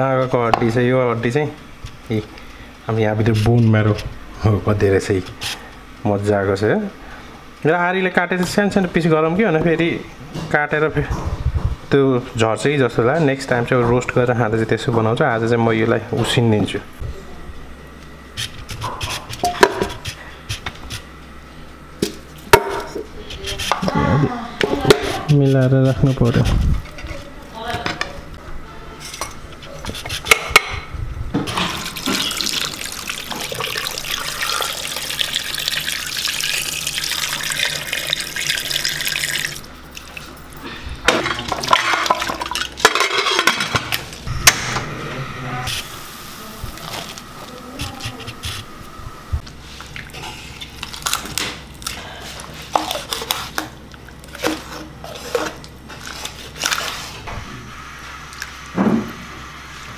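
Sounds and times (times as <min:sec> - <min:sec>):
water pouring into pot: 0:31.7 - 0:40.3.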